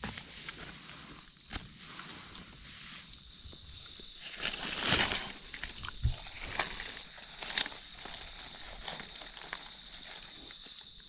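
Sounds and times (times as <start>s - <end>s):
footsteps in dry leaves: 4.0s - 10.7s.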